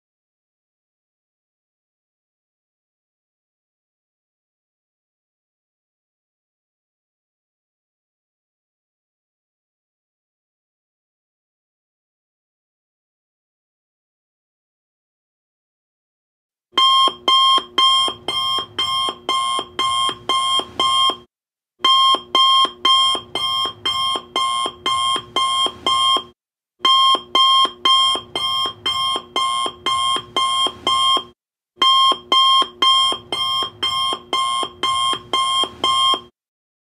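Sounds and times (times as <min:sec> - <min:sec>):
alarm clock beeping: 0:16.8 - 0:36.3.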